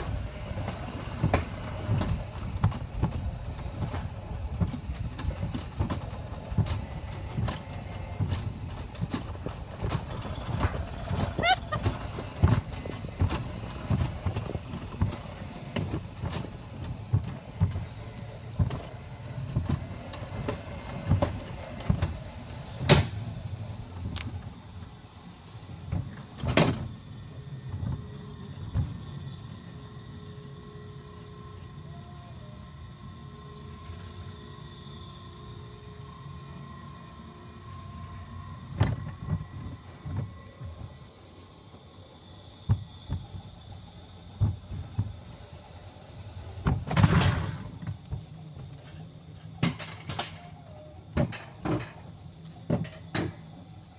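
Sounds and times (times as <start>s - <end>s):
wheels rumbling on steel rails: 0.0s - 53.9s
high insect buzz: 20.1s - 49.4s.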